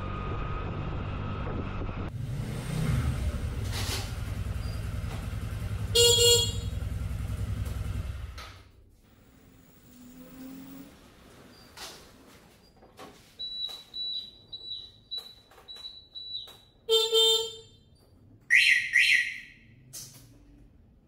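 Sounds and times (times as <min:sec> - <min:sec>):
scooter horn honk: 0:05.8 - 0:07.0, 0:16.9 - 0:17.9
high electronic beeps: 0:13.4 - 0:16.7
harsh high chirps: 0:13.4 - 0:16.9, 0:18.5 - 0:19.8.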